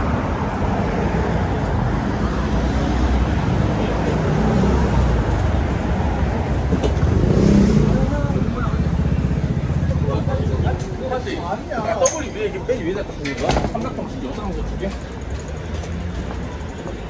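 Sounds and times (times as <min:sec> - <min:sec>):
rumble of passing vehicles: 0:00.0 - 0:17.0.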